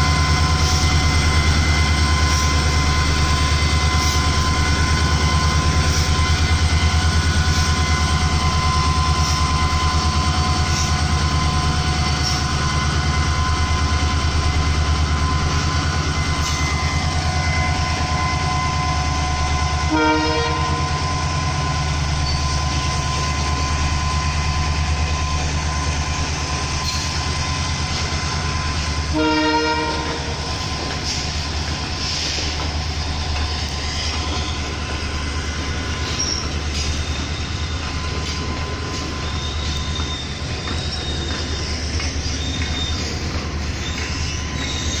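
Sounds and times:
diesel locomotive engine drone: 0.0s - 45.0s
train wheel clatter: 0.0s - 45.0s
train horn blast: 19.8s - 21.0s, 29.0s - 30.5s
faint wheel squeals: 32.1s - 45.0s.

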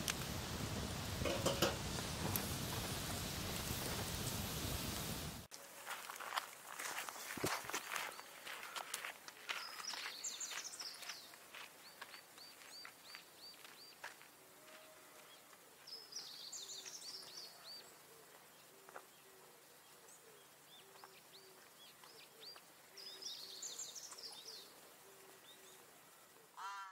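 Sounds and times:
footsteps on gravelly grass: 0.0s - 16.0s
birds singing: 9.5s - 14.1s, 15.2s - 25.9s.

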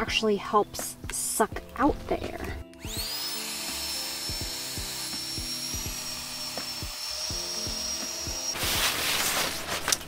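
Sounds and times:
electric air pump whining: 2.7s - 10.0s.

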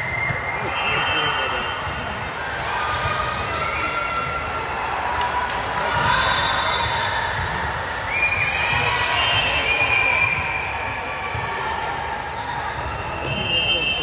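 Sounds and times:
ball bouncing on court floor: 6.8s - 9.1s.

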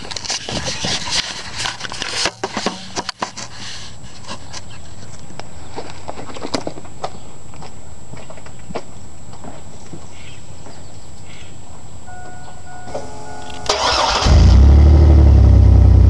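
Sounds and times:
camera rustles and knocks: 0.0s - 5.2s
car engine idling: 13.0s - 16.0s.

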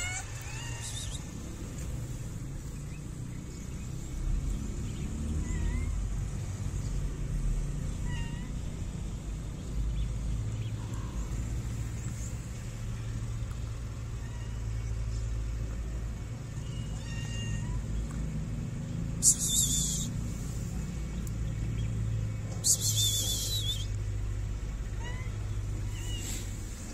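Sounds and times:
cat meowing: 0.0s - 1.3s, 5.4s - 6.0s, 8.0s - 8.6s, 16.6s - 17.9s, 24.9s - 26.5s.

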